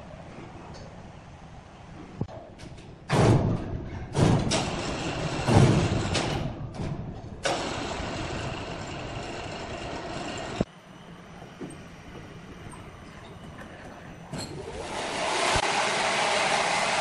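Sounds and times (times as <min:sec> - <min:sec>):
heavy rumbling thuds: 0:03.0 - 0:07.4
sawmill machine running: 0:07.4 - 0:13.4, 0:14.6 - 0:17.0.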